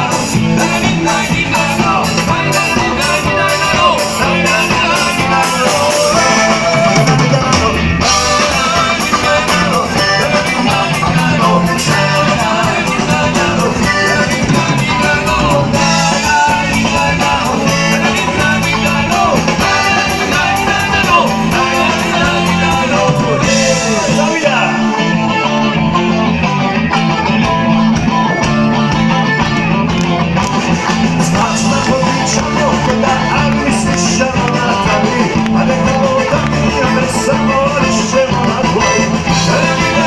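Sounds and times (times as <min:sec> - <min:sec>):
person singing: 0:00.0 - 0:25.7, 0:30.8 - 0:40.0
drum kit beat: 0:00.0 - 0:40.0
electric guitars: 0:00.0 - 0:40.0
live band playing: 0:00.0 - 0:40.0.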